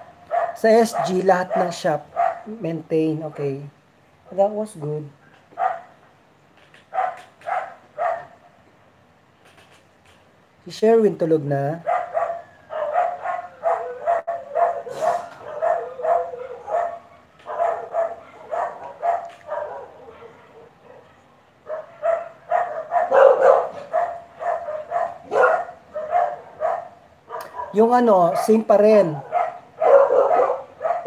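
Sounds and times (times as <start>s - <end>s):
dogs barking: 0.0s - 2.6s, 5.4s - 6.1s, 6.8s - 8.6s, 11.8s - 31.0s.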